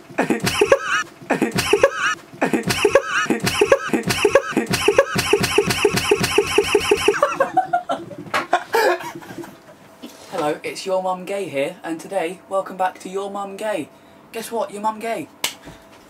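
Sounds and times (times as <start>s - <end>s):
young man laughing loudly: 0.2s - 5.2s, 7.1s - 9.6s.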